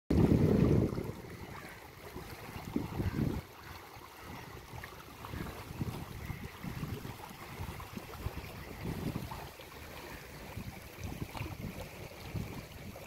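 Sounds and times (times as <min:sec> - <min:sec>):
river water lapping: 0:00.1 - 0:13.0
wind buffeting microphone: 0:00.1 - 0:13.0.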